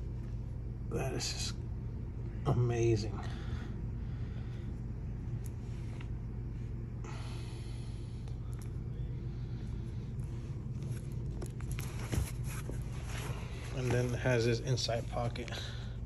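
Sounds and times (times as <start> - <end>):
steady low hum: 0.0 - 16.0
leather jacket rustling: 10.5 - 15.4.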